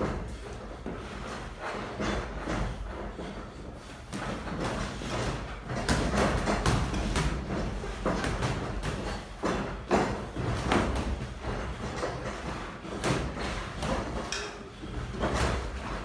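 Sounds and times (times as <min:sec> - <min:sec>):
boxing gloves smacking: 0:04.1 - 0:16.0.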